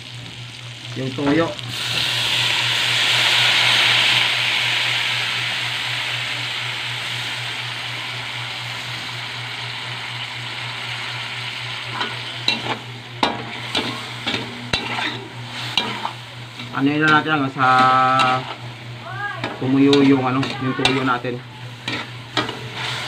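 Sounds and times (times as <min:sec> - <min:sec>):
sauce sizzling in hot wok: 0:00.0 - 0:23.0
metal spatula scraping wok: 0:13.6 - 0:18.6, 0:19.4 - 0:23.0.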